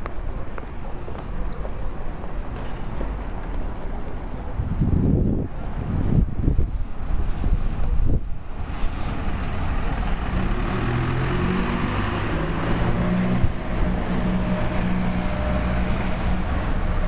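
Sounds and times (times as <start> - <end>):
traffic noise: 0.0 - 17.0
wind buffeting microphone: 4.1 - 17.0
bus diesel engine running: 7.0 - 17.0.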